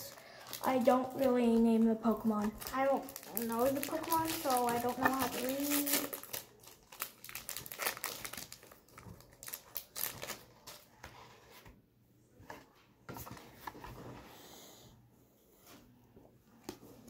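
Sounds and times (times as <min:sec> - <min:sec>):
foil wrapper crinkling and tearing: 0:02.4 - 0:10.8.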